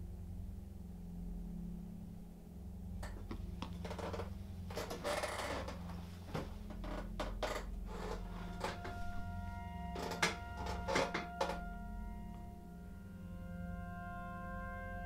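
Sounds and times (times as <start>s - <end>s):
low drone: 0.0s - 15.0s
sustained musical tones: 2.8s - 15.0s
clicks and crackles: 3.0s - 9.0s, 10.0s - 11.6s.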